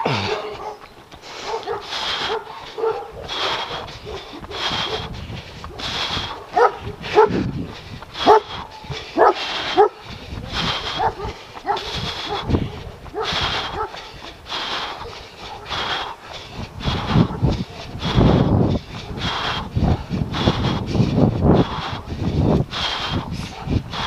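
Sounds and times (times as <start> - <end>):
dog barking: 0.0 - 0.8, 1.4 - 5.1, 6.4 - 7.4, 8.2 - 10.0, 10.9 - 14.0, 15.0 - 15.7, 23.5 - 23.8.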